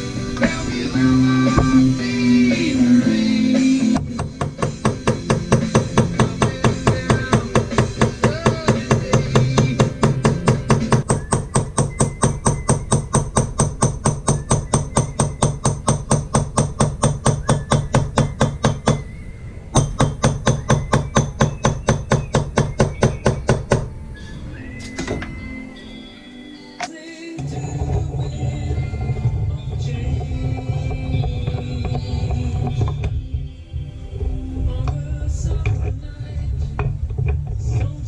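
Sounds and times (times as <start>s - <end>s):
hammer tapping chisel into metal: 4.2s - 19.0s, 19.8s - 23.9s.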